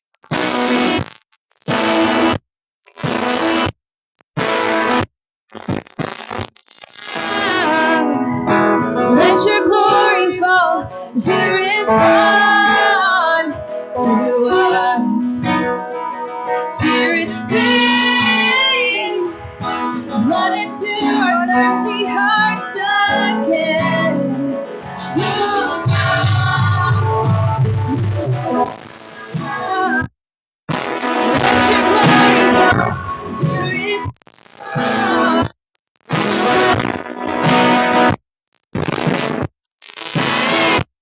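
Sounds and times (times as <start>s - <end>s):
strummed guitar: 4.4s - 30.1s, 30.7s - 35.5s, 36.1s - 38.2s, 38.8s - 40.8s
woman singing: 7.4s - 8.4s, 9.0s - 15.5s, 16.7s - 19.4s, 20.1s - 24.4s, 25.0s - 27.1s, 29.4s - 30.0s, 31.4s - 34.1s, 34.7s - 35.5s, 36.1s - 36.9s
band playing worship song: 22.8s - 29.8s, 30.8s - 34.0s.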